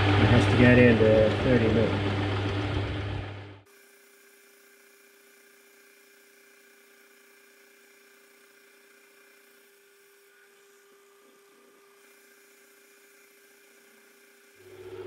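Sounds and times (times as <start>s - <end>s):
lathe motor humming and whining: 0.0s - 15.0s.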